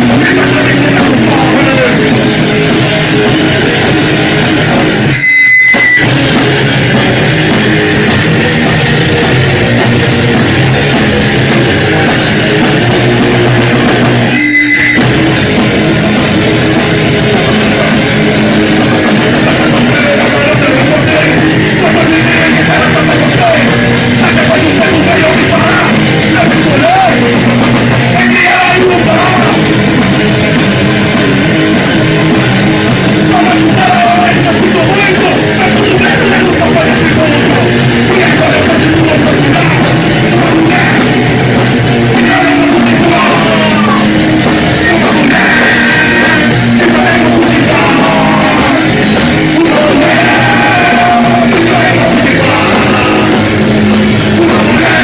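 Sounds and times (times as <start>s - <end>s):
person singing: 0.0s - 3.4s, 18.8s - 30.0s, 33.2s - 55.0s
bass guitar: 0.0s - 55.0s
distorted electric guitars: 0.0s - 55.0s
drum kit: 0.0s - 55.0s.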